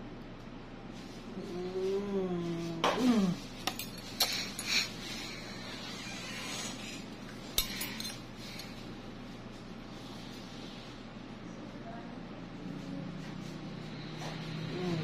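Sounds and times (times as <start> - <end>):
short hummed voice-like sound: 1.3 - 3.5, 14.2 - 15.0.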